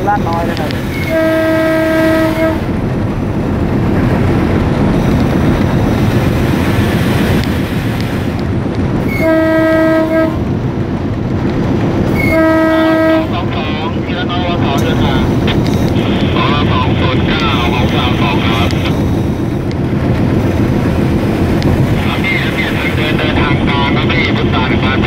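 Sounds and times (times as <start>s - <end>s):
diesel locomotive engine: 0.0s - 25.0s
wheels on rails: 0.0s - 25.0s
multi-tone air horn: 1.0s - 2.7s, 9.1s - 10.4s, 12.2s - 13.3s.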